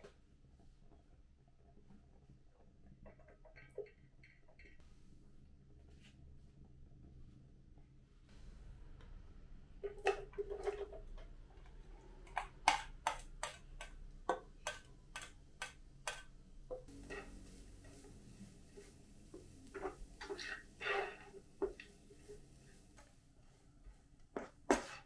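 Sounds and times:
spatula tapping on steel bowl: 12.4s - 17.2s
onions stirred in frying pan: 12.4s - 23.3s.

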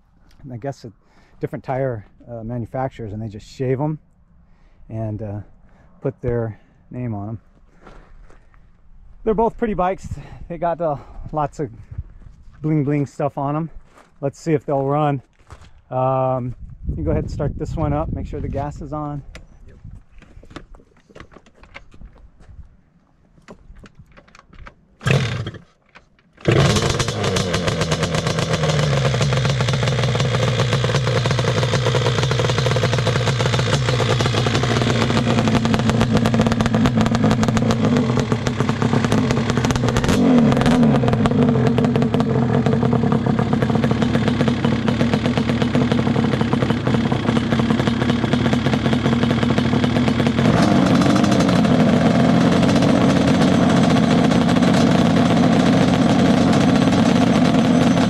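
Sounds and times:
two-stroke quad engine: 25.0s - 25.8s, 26.4s - 58.0s.

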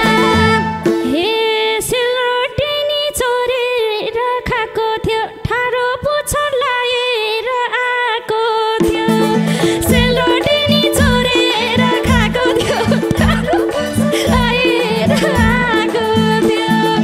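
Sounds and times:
hand drum: 0.0s - 1.3s, 8.8s - 17.0s
woman singing into microphone: 0.0s - 17.0s.

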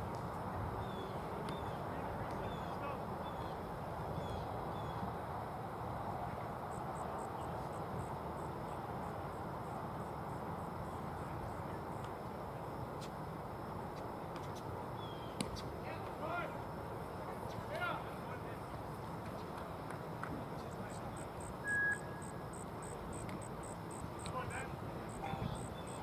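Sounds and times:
short chirps: 21.6s - 22.3s
faint high chirp repeating: 21.6s - 22.4s.

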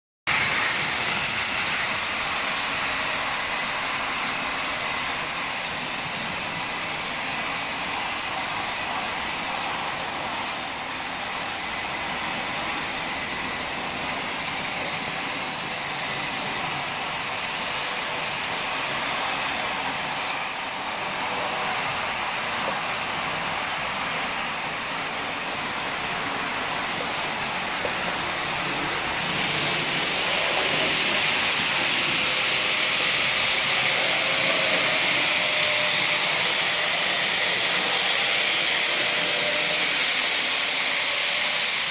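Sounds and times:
model train motor whirring: 0.4s - 41.9s.

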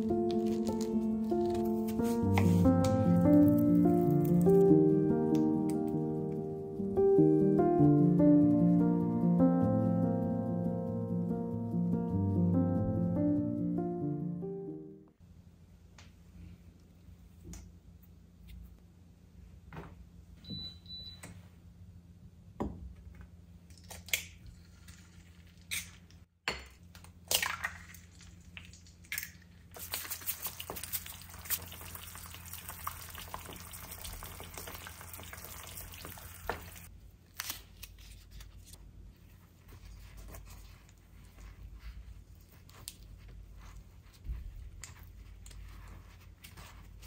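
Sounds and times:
water running: 29.8s - 36.9s.

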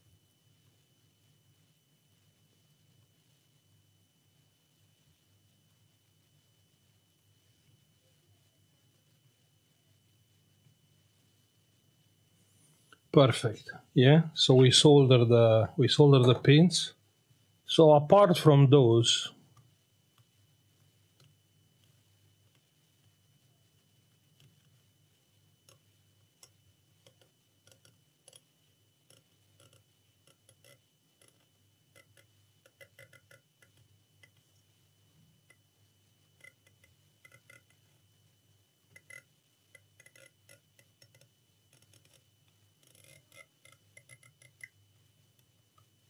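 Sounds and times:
faint high whine: 0.0s - 46.0s
metal tweezers clicking: 39.0s - 42.2s, 42.8s - 44.7s.

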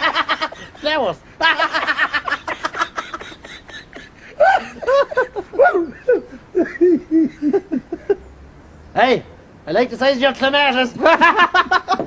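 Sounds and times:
person laughing: 0.0s - 8.2s, 11.0s - 12.0s.

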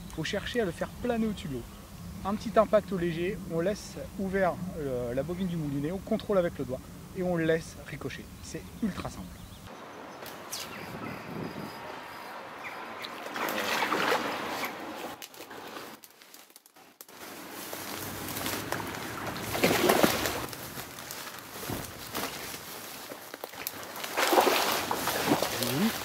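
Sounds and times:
fish thrashing and water splashing: 12.7s - 16.1s, 17.9s - 26.0s.

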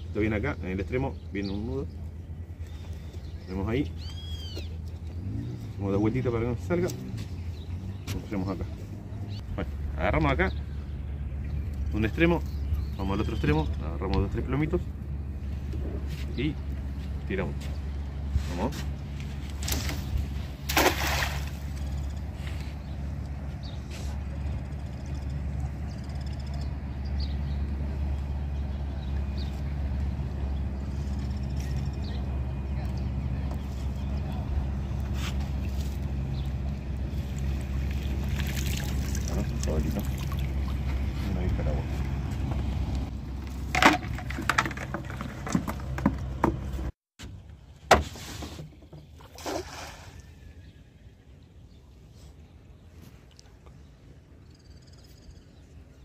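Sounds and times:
small birds chirping: 0.1s - 43.1s, 50.2s - 56.0s
net swishing and splashing: 20.6s - 21.8s, 49.3s - 50.2s.

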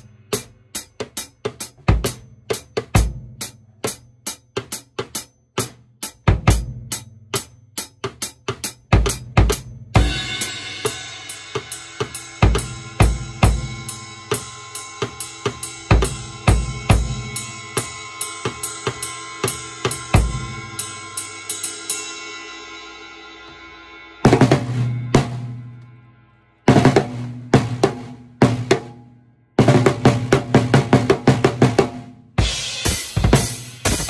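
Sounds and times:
cymbal ringing: 10.0s - 26.7s
bass drum: 29.6s - 34.0s.

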